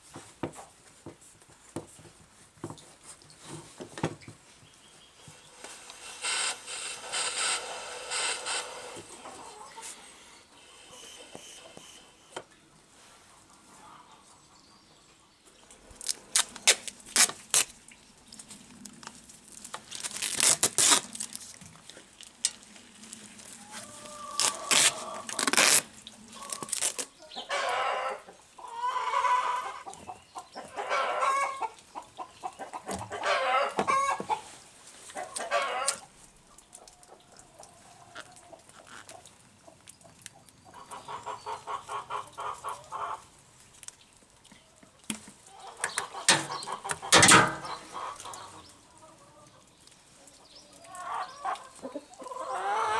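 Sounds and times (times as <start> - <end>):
chickens clucking: 5.3 - 12.4, 23.5 - 25.4, 26.3 - 43.4, 44.5 - 52.9.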